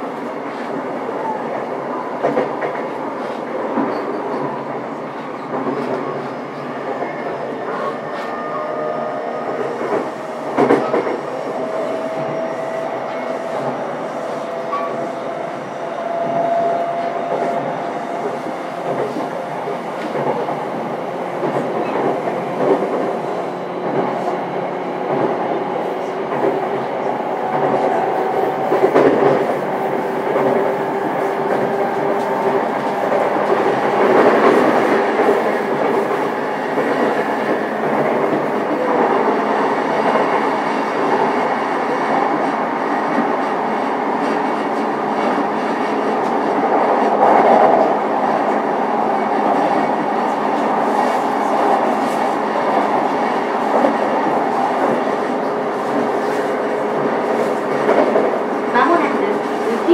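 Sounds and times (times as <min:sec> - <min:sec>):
train wheels rumbling on rails: 0:00.0 - 0:59.9
rail joint clicks: 0:09.5 - 0:15.3, 0:16.0 - 0:41.2.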